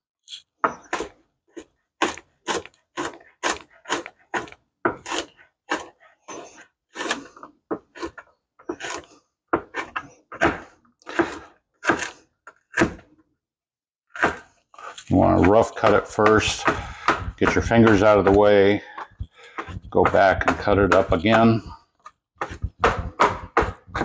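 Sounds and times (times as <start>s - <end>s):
knife chopping on cutting board: 9.6s - 12.1s, 15.9s - 21.7s, 22.4s - 24.0s.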